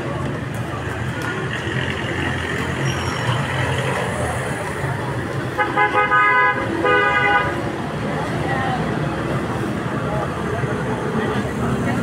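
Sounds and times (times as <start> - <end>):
street traffic rumble: 0.0 - 12.0
vehicle horn: 5.6 - 7.6.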